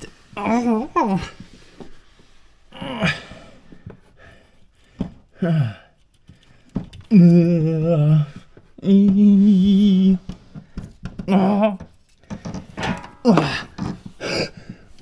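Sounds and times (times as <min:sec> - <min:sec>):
man vocalizing ooh sounds: 0:07.1 - 0:10.3
man humming: 0:07.1 - 0:10.4.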